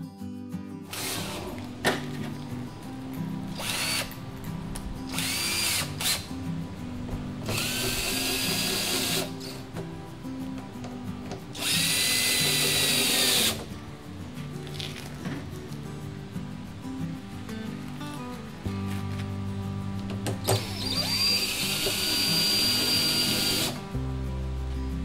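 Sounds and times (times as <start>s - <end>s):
background music with bass line: 0.0s - 25.0s
cordless drill whine: 0.9s - 2.3s, 3.5s - 4.2s, 5.1s - 6.3s, 7.4s - 9.6s, 11.6s - 13.6s, 20.4s - 23.9s.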